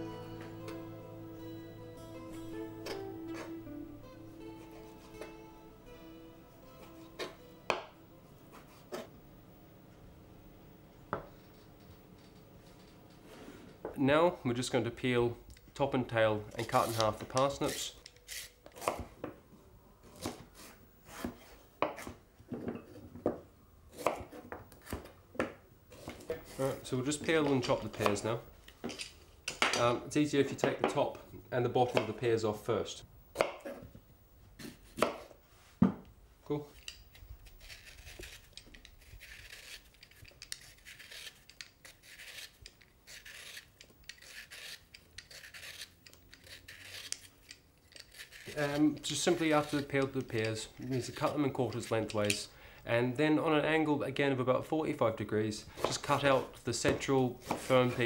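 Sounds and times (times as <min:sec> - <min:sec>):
blade scraping fruit skin: 0:16.6 - 0:19.1, 0:36.8 - 0:52.4
knife chopping on board: 0:18.8 - 0:19.2, 0:24.0 - 0:26.2, 0:34.6 - 0:36.0, 0:56.9 - 0:57.7.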